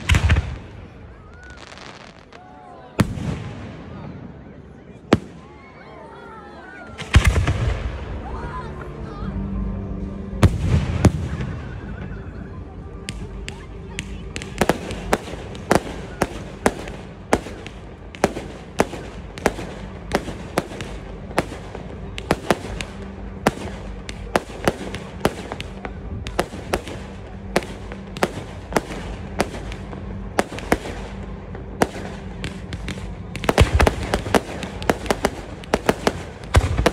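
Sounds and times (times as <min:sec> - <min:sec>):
fireworks bursting: 0:00.0 - 0:02.4, 0:13.0 - 0:36.9.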